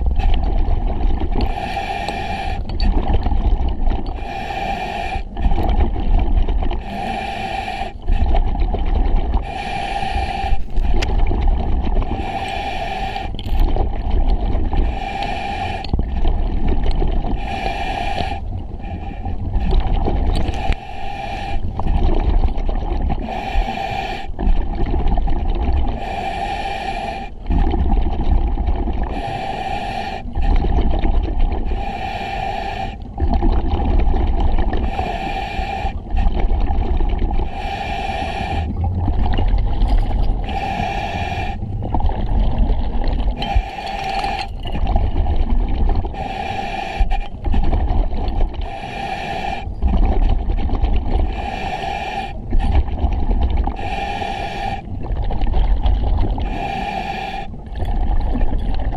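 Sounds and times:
exhaled bubbles rumbling: 0.0s - 4.5s, 5.1s - 7.0s, 8.0s - 26.1s, 27.3s - 58.9s
hissing regulator inhale: 1.4s - 2.8s, 4.1s - 5.7s, 6.8s - 8.3s, 9.4s - 11.1s, 12.0s - 13.6s, 14.8s - 16.0s, 17.3s - 19.7s, 20.4s - 22.0s, 23.2s - 24.5s, 25.9s - 27.6s, 29.0s - 30.8s, 31.6s - 33.1s, 34.7s - 36.3s, 37.4s - 38.9s, 39.8s - 42.0s, 43.1s - 44.9s, 46.1s - 47.6s, 48.6s - 50.4s, 51.2s - 52.8s, 53.7s - 55.0s, 56.4s - 57.6s.

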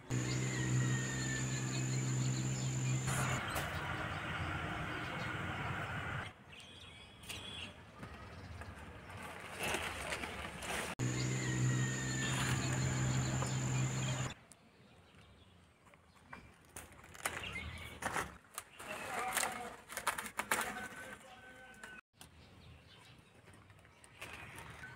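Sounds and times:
low mechanical hum: 0.0s - 6.3s, 11.0s - 14.4s.

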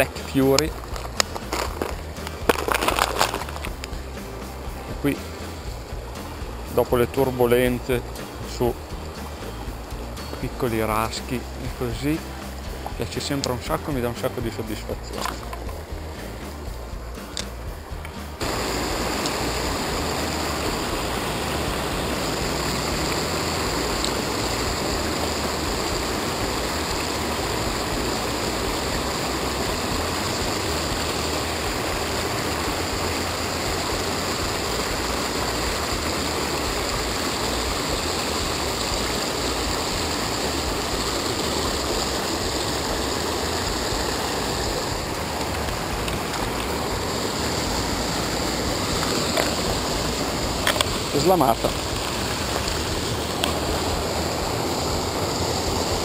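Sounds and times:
river water rushing over weir: 0.0s - 56.0s.

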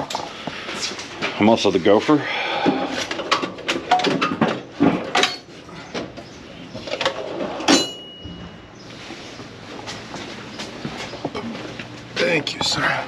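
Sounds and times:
metal tools clattering: 3.1s - 5.6s
high metallic ring: 7.7s - 8.7s.

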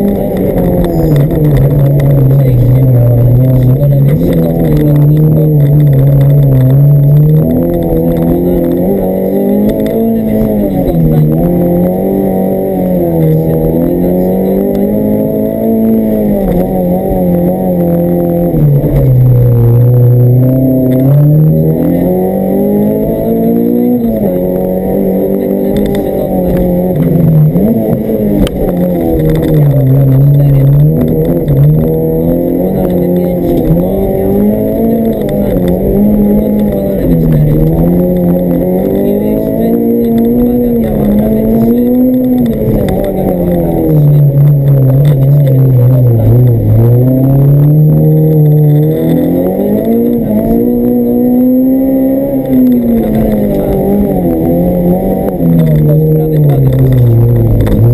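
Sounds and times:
car engine revving: 0.0s - 57.9s.

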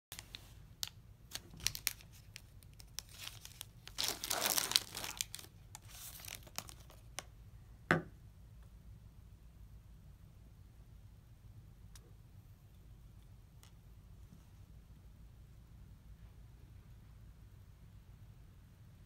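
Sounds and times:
wrapper crinkling and tearing: 0.1s - 7.1s.

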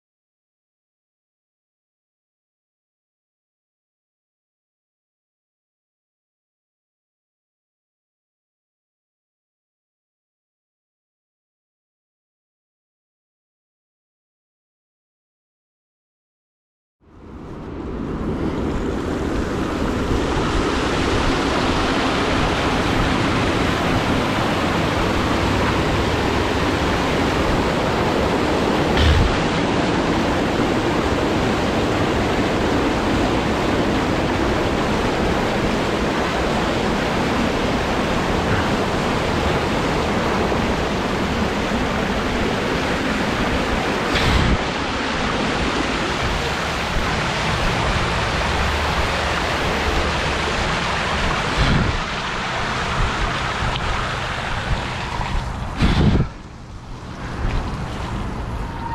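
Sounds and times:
wheels splashing through water: 17.8s - 58.9s
thumps: 29.0s - 29.6s.

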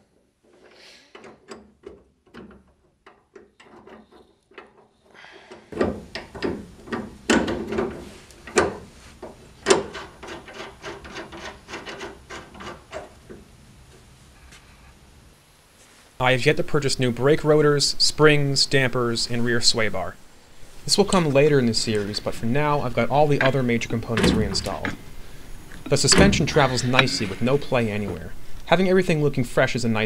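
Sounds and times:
metal bolts clicking and scraping: 0.5s - 13.5s, 20.9s - 28.9s.

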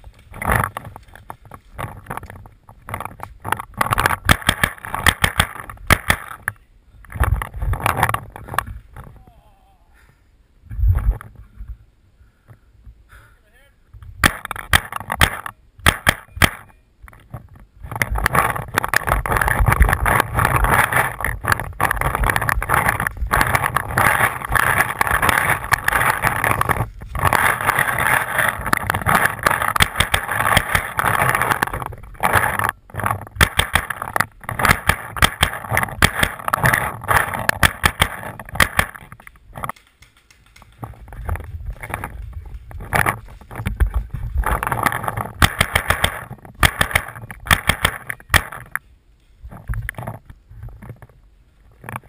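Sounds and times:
sharp clicks: 2.0s - 8.7s, 17.9s - 48.8s
carried gear rustling and knocking: 17.1s - 48.8s.

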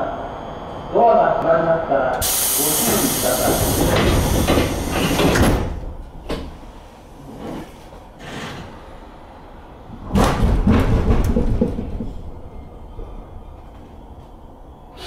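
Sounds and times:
pneumatic hiss: 2.2s - 5.7s
train doors thumping shut: 2.2s - 6.6s, 10.0s - 12.4s
train door click: 2.8s - 6.6s.

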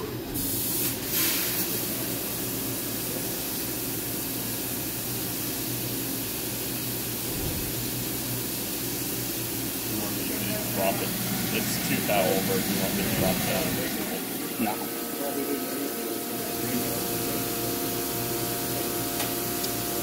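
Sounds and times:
coolant spraying and hissing: 0.3s - 20.0s
machine low hum: 9.0s - 20.0s.

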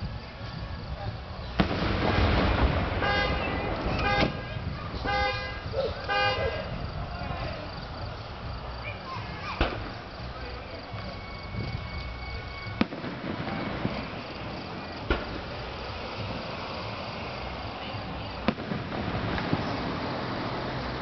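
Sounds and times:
steady background hiss: 0.0s - 21.0s
firework shells bursting: 1.6s - 5.3s, 9.6s - 11.1s, 12.0s - 21.0s.

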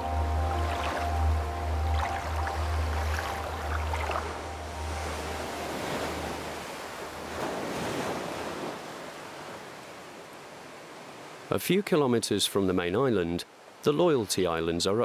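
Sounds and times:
surf breaking on rocks: 2.9s - 9.8s.

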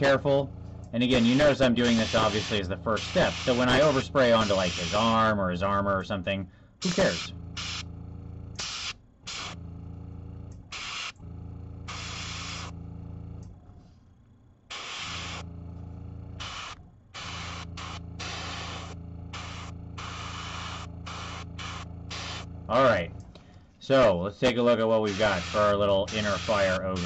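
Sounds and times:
steady low hum: 0.0s - 27.0s
airbrush hissing bursts: 1.0s - 5.2s, 6.8s - 7.9s, 8.6s - 9.6s, 10.7s - 11.2s, 11.9s - 12.8s, 14.7s - 15.5s, 16.4s - 22.5s, 25.0s - 27.0s.

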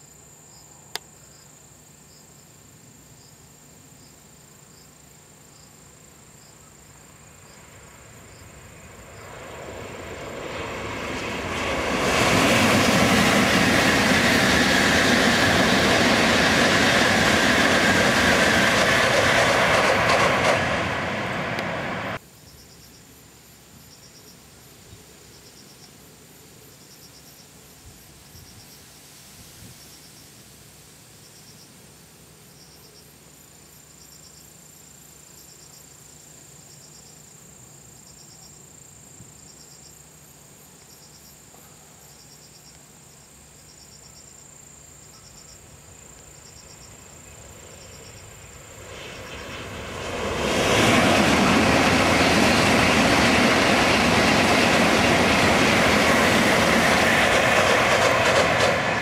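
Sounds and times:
insects chirping in pulses: 0.0s - 59.0s
bullet train passing: 6.7s - 22.2s, 45.2s - 59.0s.

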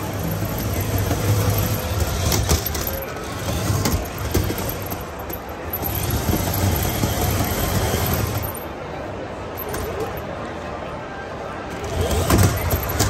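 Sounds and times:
toy car electric motors buzzing: 0.0s - 8.6s, 11.7s - 13.0s.

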